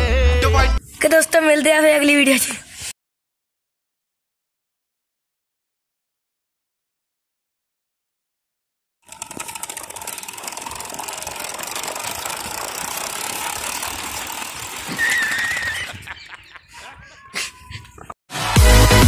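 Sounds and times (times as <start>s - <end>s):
toy motor whirring and rattling: 9.0s - 16.0s.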